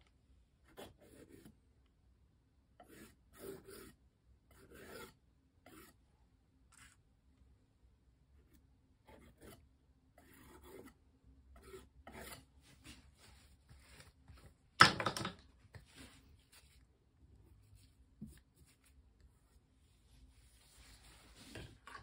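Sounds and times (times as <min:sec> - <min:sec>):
palette knife scraping paint: 0:00.6 - 0:01.6, 0:02.8 - 0:06.0, 0:06.7 - 0:07.0, 0:08.4 - 0:14.2.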